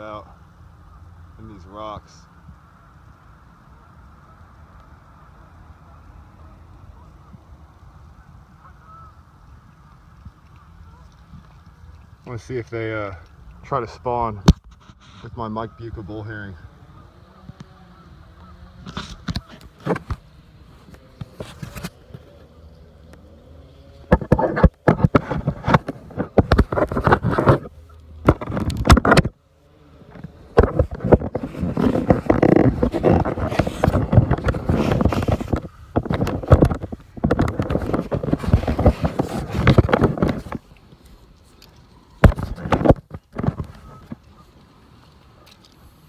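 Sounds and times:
microphone handling crackle: 13.7s - 16.4s, 17.2s - 23.2s, 23.8s - 44.6s.

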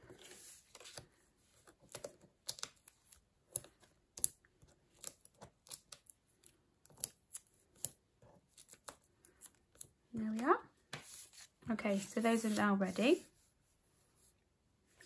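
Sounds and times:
small clicks and taps of foam pads: 0.7s - 11.2s.

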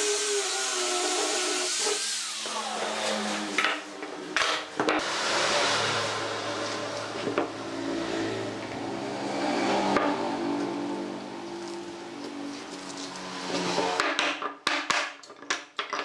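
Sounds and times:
angle grinder winding down: 0.0s - 3.8s, 5.0s - 12.0s, 12.8s - 14.0s.

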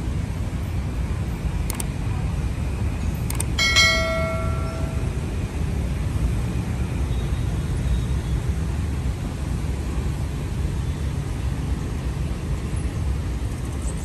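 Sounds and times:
low outdoor rumble: 0.0s - 14.0s
short click: 1.7s - 1.9s, 3.3s - 3.5s
ringing tone with overtones: 3.6s - 5.2s.

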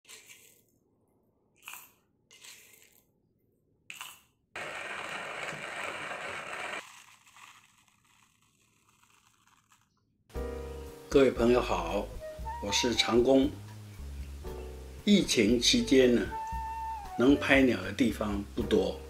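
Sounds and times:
hand coffee grinder crunching beans: 0.0s - 0.7s, 1.6s - 3.1s, 3.9s - 10.0s.

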